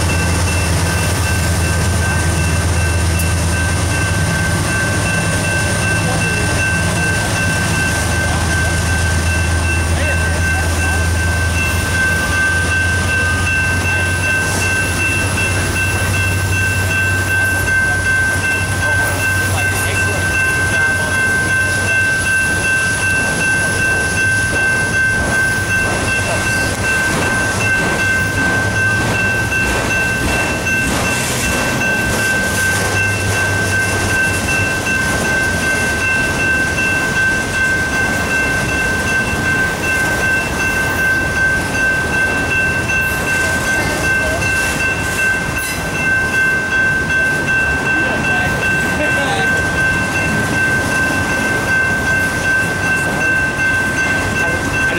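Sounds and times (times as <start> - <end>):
crossing bell ringing: 0.0 - 54.9
freight train wheels rumbling: 0.0 - 54.9.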